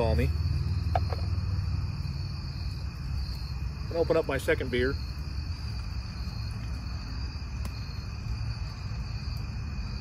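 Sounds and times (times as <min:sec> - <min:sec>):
crickets chirring: 0:00.0 - 0:10.0.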